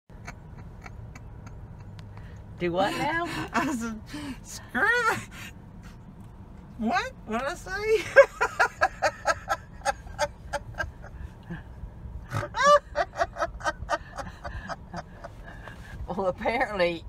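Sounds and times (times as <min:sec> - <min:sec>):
woman laughing hard: 0:08.0 - 0:11.6, 0:12.4 - 0:15.6
woman squealing with laughter: 0:12.5 - 0:13.7.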